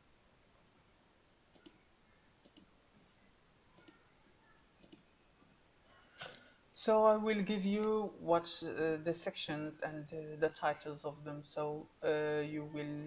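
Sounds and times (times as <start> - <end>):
faint clicks: 1.5 - 1.8, 2.4 - 3.1, 3.7 - 4.0, 4.8 - 5.5.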